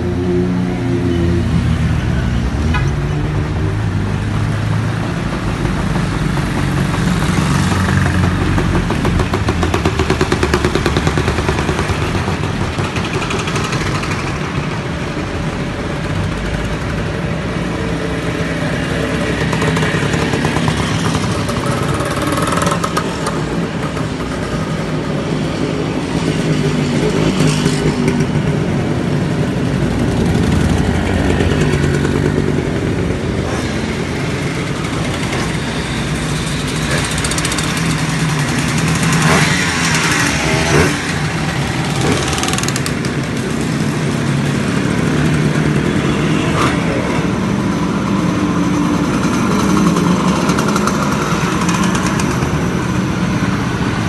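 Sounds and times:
motorcycle engines passing: 0.0 - 54.0.

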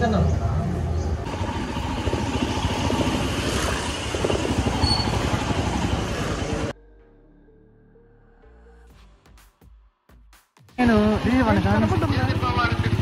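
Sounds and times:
road and wind noise: 0.0 - 6.7.

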